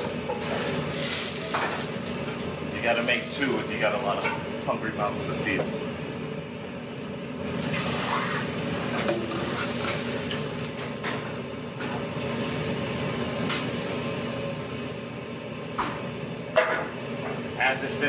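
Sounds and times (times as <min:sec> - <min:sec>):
steady low hum: 0:00.0 - 0:18.0
batter sizzling in a pan: 0:00.9 - 0:04.1, 0:07.4 - 0:10.9.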